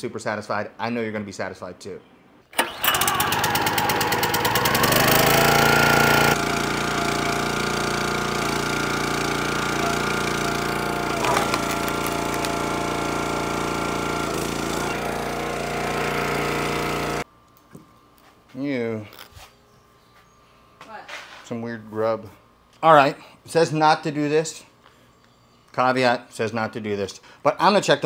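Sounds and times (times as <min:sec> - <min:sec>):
small gas engine running: 0:02.6 - 0:17.2.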